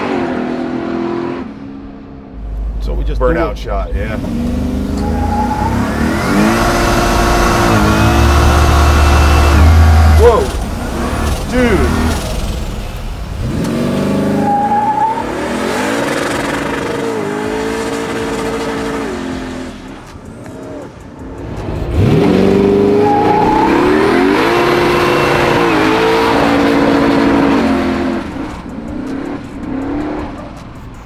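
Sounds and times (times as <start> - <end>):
car engine accelerating hard: 0.0 - 30.9.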